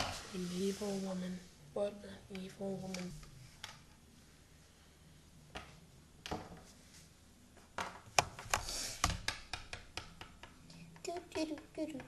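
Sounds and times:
plastic toys tapping on wood: 7.8s - 12.0s.

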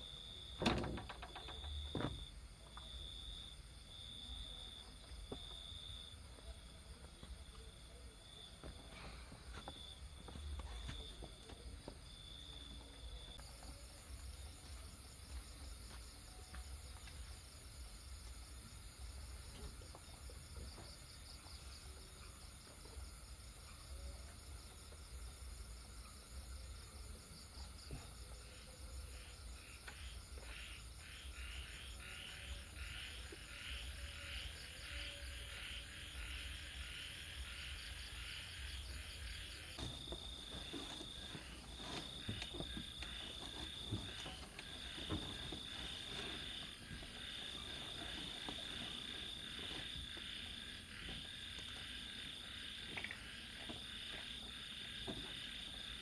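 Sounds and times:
insects high-pitched drone: 0.0s - 56.0s
pulsed cricket chirping: 0.0s - 56.0s
high insect trill: 11.8s - 56.0s.

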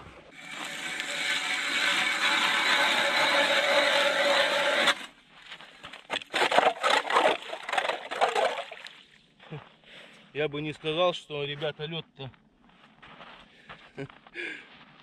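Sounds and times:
ice auger grinding through ice: 0.3s - 5.2s, 6.1s - 8.9s
scrapes and knocks: 6.1s - 8.6s.

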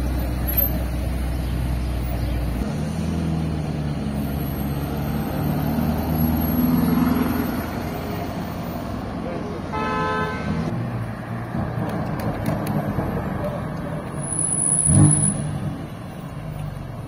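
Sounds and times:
car engine pulling away: 0.0s - 8.8s.

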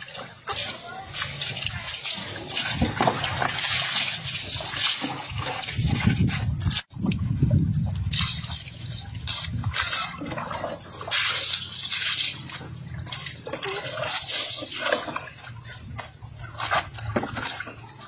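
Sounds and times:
water splashing and trickling: 0.0s - 18.0s.

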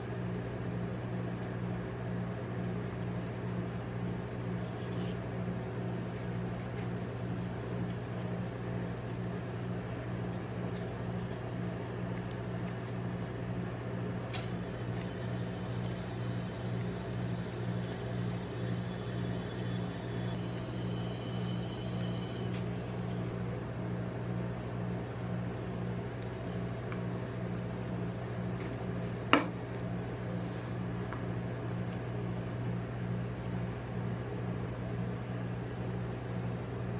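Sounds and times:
electric machine hum: 0.0s - 35.2s.

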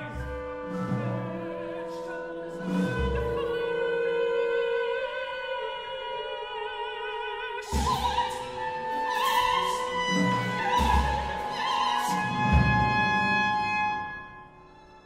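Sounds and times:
operatic singing: 0.0s - 15.0s.

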